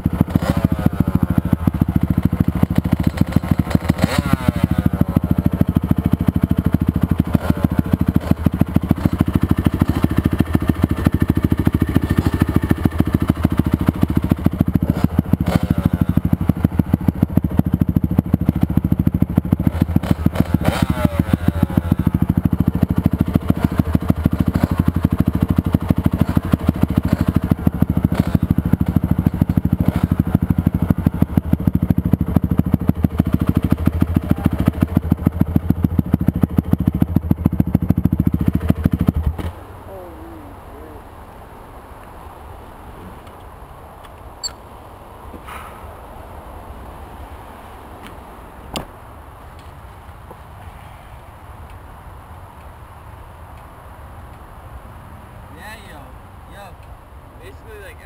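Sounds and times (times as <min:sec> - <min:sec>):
engine revving: 0:00.0 - 0:41.1
dirt bike engines idling: 0:00.0 - 0:58.0.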